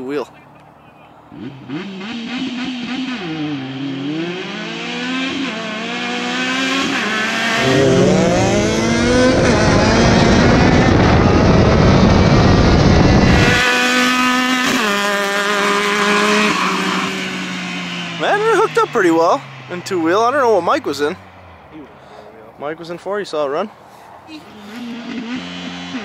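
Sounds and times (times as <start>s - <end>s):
engines revving and accelerating: 1.3s - 21.4s, 24.5s - 26.0s
wind rush: 7.6s - 13.6s.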